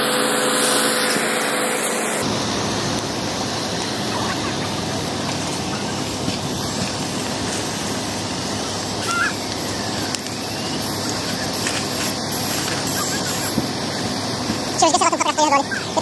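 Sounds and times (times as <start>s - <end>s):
fire hoses rushing: 0.0s - 16.0s.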